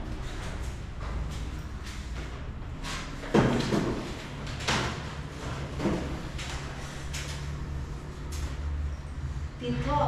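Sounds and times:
knocks and scrapes of unit: 2.1 - 7.4.

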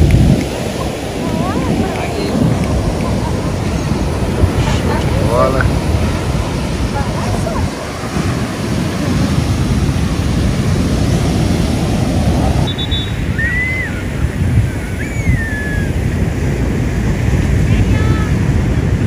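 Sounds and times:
ocean surf breaking: 0.0 - 19.0
wind buffeting microphone: 0.0 - 19.0
short high calls: 12.7 - 14.1.

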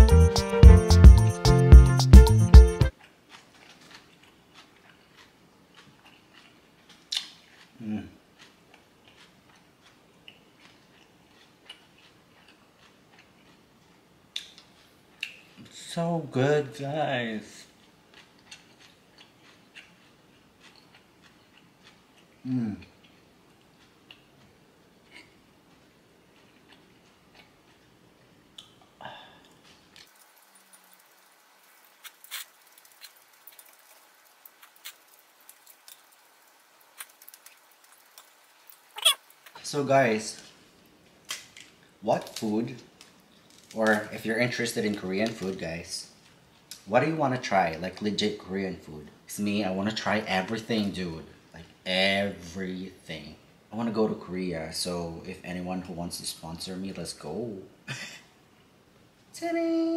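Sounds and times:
closed-mouth chewing: 2.9 - 15.7, 17.7 - 31.0, 31.8 - 39.6.

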